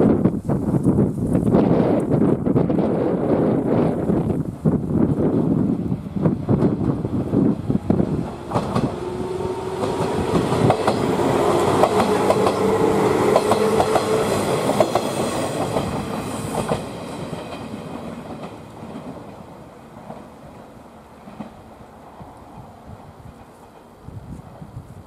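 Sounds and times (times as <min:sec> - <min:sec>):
train humming tone: 0:01.6 - 0:25.0
train wheels clicking over rail joints: 0:06.2 - 0:21.8.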